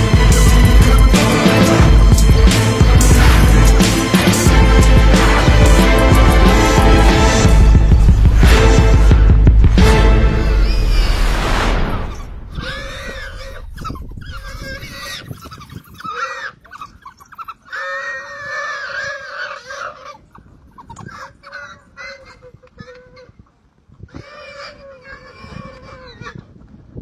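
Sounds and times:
wild pig squealing in distress: 12.1 - 23.4, 24.1 - 26.4.

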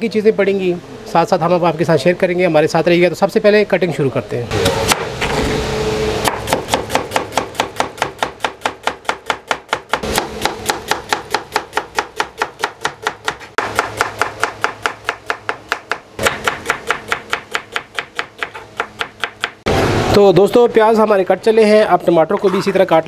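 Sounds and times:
knife chopping on wooden board: 6.2 - 19.6.

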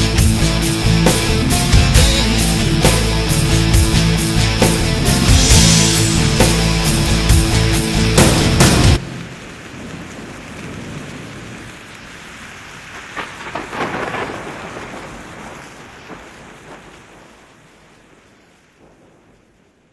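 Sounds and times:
steady rain hiss: 0.0 - 19.9
thunder crack and rumble: 7.4 - 19.9.

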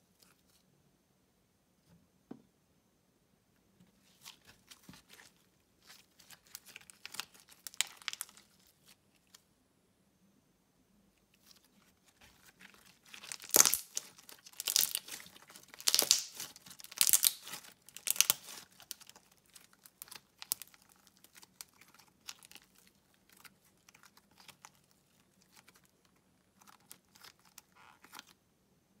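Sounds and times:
slime crackling and popping: 4.2 - 9.0, 12.2 - 28.4.

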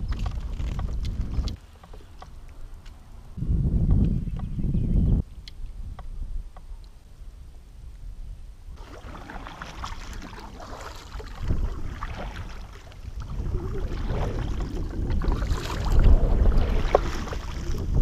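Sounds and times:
wind rumbling on microphone: 0.0 - 18.0
paddle strokes splashing water: 8.8 - 18.0.

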